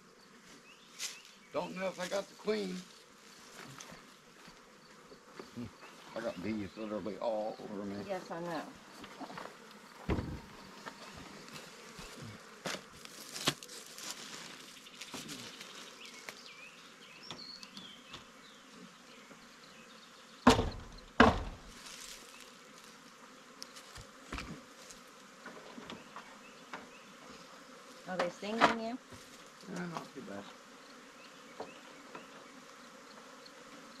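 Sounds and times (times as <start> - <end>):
bees buzzing: 0.0 - 34.0
sharp knocks: 10.1 - 10.5, 20.5 - 21.7.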